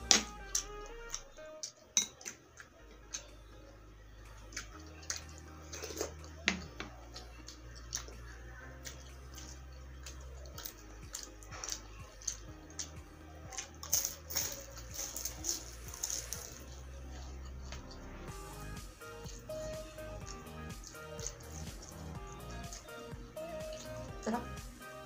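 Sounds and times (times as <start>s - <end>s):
chewing with wet mouth clicks: 0.5s - 3.3s, 4.3s - 13.9s, 19.2s - 24.1s.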